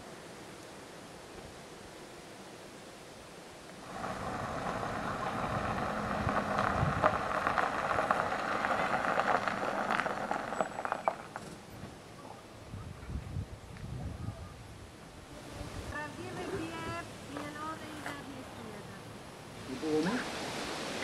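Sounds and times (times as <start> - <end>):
van engine running: 3.8 - 11.6
tyres crunching on gravel: 3.8 - 12.0.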